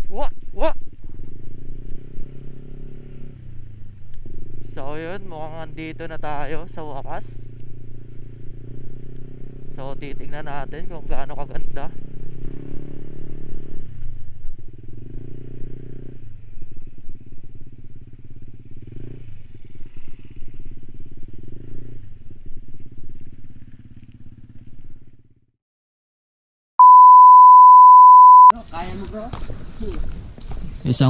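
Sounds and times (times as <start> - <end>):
motor scooter engine revving: 11.9 - 16.4, 18.0 - 24.7
high-pitched beep: 26.8 - 28.6.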